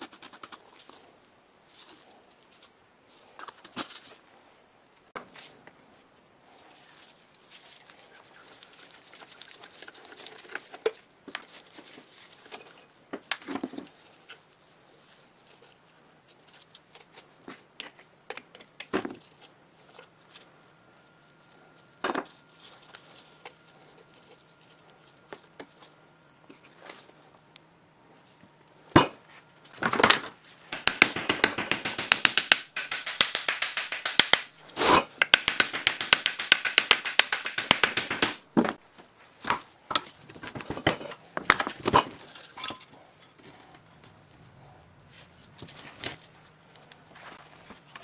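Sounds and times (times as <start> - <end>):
sharp knock on metal: 30.8 - 34.4.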